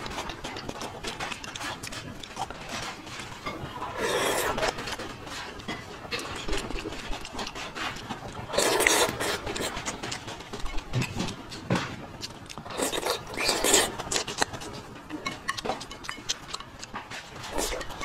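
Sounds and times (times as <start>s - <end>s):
person chewing: 0.0s - 18.0s
person slurping: 3.8s - 4.8s, 8.5s - 9.8s, 12.6s - 14.5s, 17.5s - 18.0s
wet mouth sounds: 3.8s - 4.9s, 8.4s - 10.0s, 12.2s - 14.7s, 15.4s - 18.0s.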